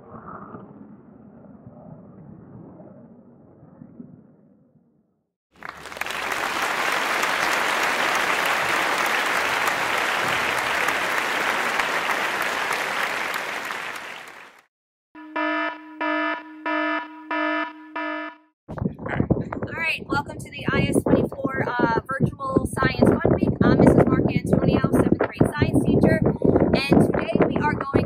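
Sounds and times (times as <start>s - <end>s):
crowd applauding: 5.6s - 14.7s
pulsing electronic alarm buzzer: 15.2s - 18.5s.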